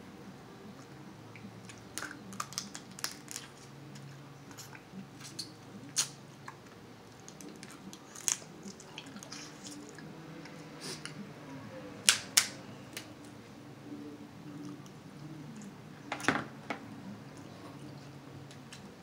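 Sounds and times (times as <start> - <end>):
crab shells cracking: 1.7 - 6.2, 7.2 - 9.8.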